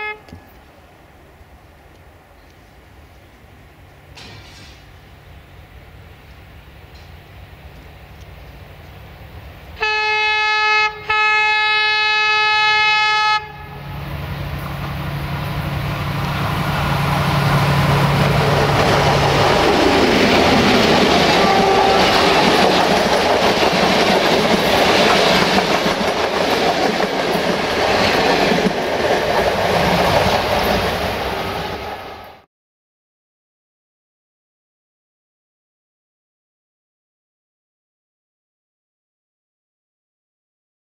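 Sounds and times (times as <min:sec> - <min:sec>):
locomotive horn blasts: 0:00.0 - 0:00.4, 0:09.8 - 0:13.9, 0:21.3 - 0:22.6
diesel locomotive engine: 0:00.0 - 0:32.4
wheels clattering over rail joints: 0:17.5 - 0:31.2.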